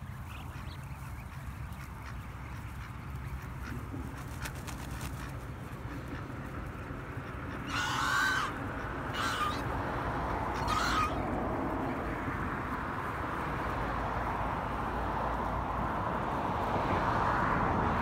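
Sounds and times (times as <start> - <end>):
goose honking: 0.2 - 11.5.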